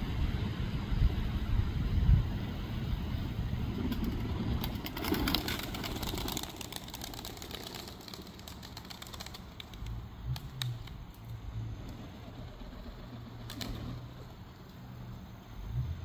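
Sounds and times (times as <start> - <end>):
pigeon wings clapping and flapping: 3.8 - 11.2, 11.8 - 14.8.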